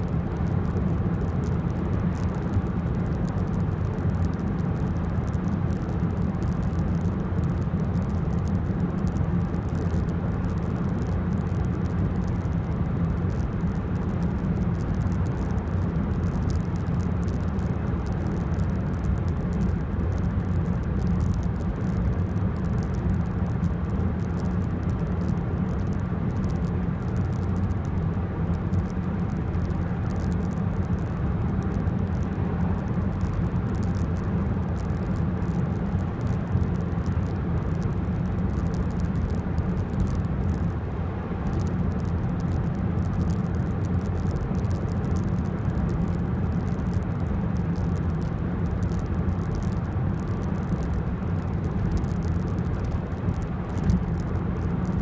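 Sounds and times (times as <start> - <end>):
car engine and road drone: 0.0 - 55.0.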